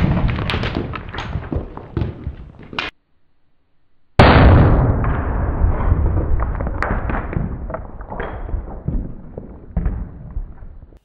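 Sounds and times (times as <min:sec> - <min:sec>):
debris clicks and knocks: 0:00.0 - 0:02.9
sharp crack: 0:00.0 - 0:03.0, 0:04.2 - 0:10.7.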